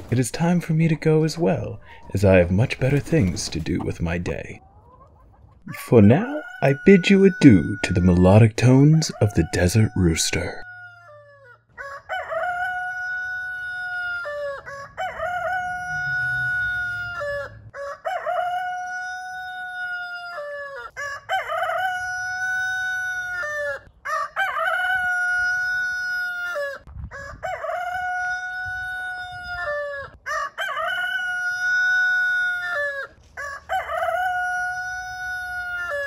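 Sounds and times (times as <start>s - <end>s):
rooster crowing: 6.3s - 8.2s, 9.1s - 36.0s.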